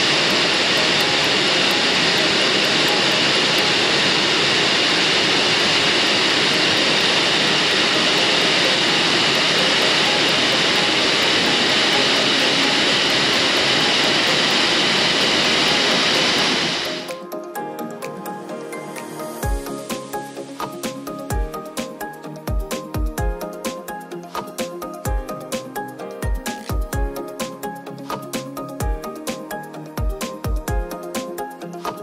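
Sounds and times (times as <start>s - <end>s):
waterfall rushing: 0.0s - 17.2s.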